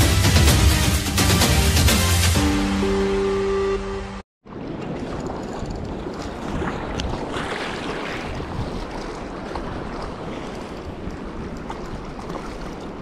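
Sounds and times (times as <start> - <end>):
small waves washing: 4.4 - 13.0
wind buffeting microphone: 4.5 - 13.0.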